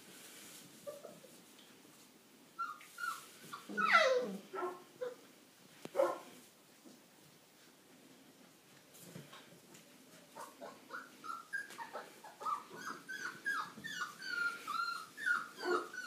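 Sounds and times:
puppies yipping and barking: 2.6 - 5.2, 10.4 - 16.0.

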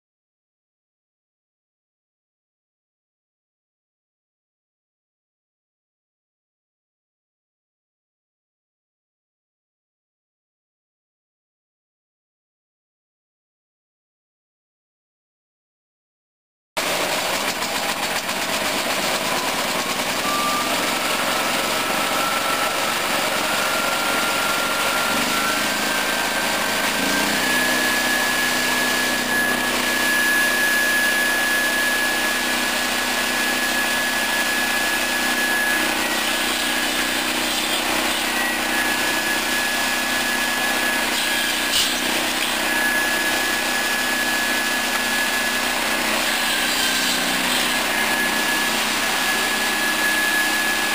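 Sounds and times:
petrol engine low hum: 16.8 - 38.5
saw blade high whine: 16.8 - 50.9.

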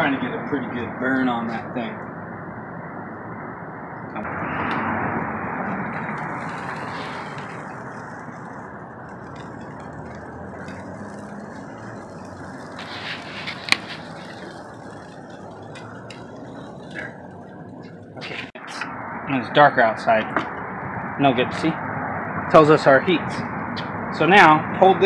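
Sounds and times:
meat sizzling on a grill: 4.9 - 17.5.

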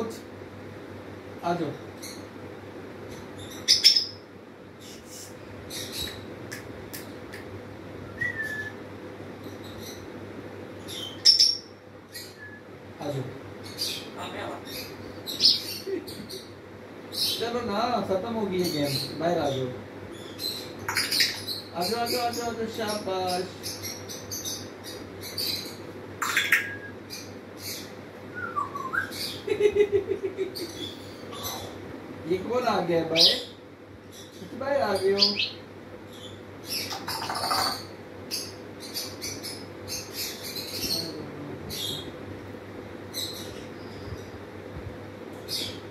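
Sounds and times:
parrot high chirp: 3.5 - 4.2, 8.2 - 8.8, 10.9 - 12.6, 26.2 - 27.0, 27.7 - 29.4
parrot whistling: 8.1 - 8.8, 26.5 - 27.0, 28.3 - 29.2
parrot clicking and chirping: 20.9 - 21.4.

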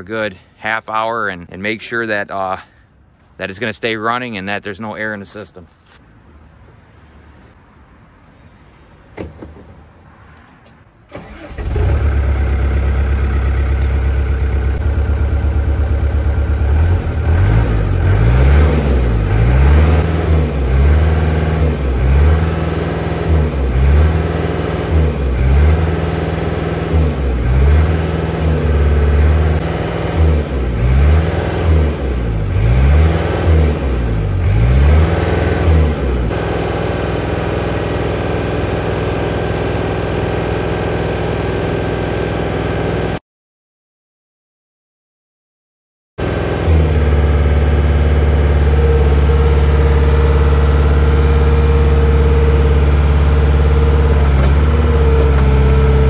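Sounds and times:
diesel engine starting and revving: 10.2 - 43.2, 46.2 - 56.0.

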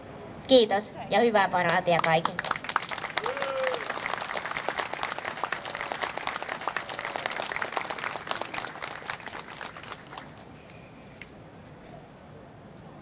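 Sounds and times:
crowd clapping: 1.7 - 10.6.

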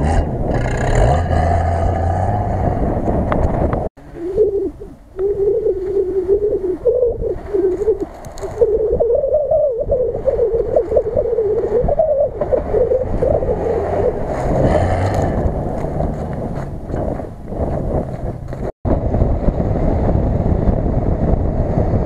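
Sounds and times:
car engine wavering with throttle: 11.6 - 22.0.

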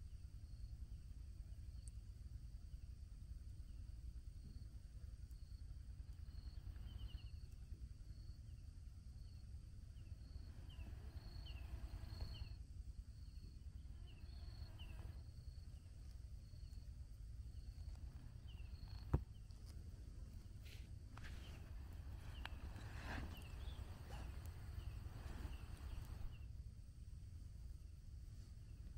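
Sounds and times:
steady low rumble: 0.0 - 28.9
faint high pulsing tone: 4.4 - 26.6.

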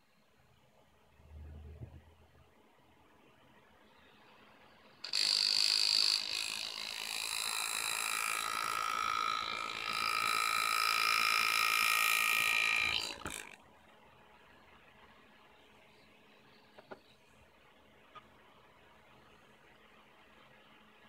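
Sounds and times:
pneumatic engraving tool buzzing: 5.0 - 13.6.

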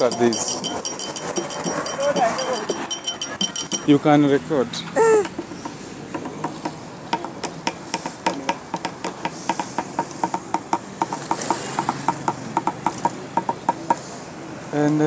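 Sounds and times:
quick ringing tapping rhythm: 0.0 - 4.1
steady traffic noise: 0.0 - 15.0.

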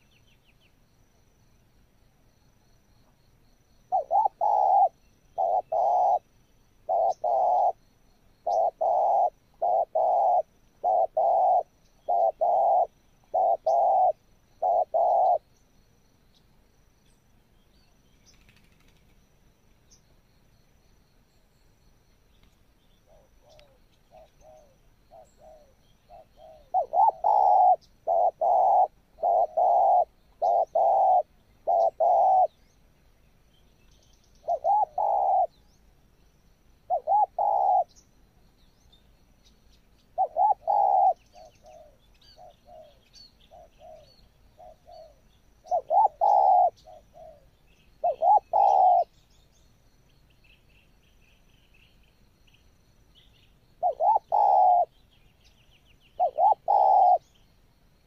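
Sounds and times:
small birds chirping faintly: 0.0 - 58.0
doves cooing: 3.9 - 7.8, 8.4 - 15.5, 23.1 - 32.6, 34.4 - 35.6, 36.9 - 37.9, 40.2 - 49.1, 53.8 - 54.9, 56.2 - 57.3.

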